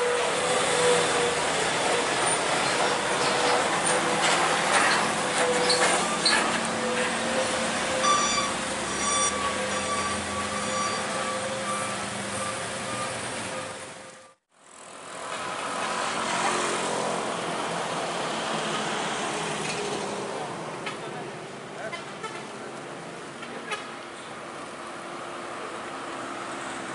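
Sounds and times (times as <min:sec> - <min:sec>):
truck engine labouring: 0:00.0 - 0:14.4
traffic noise: 0:00.0 - 0:26.9
short high beeps: 0:08.0 - 0:13.2.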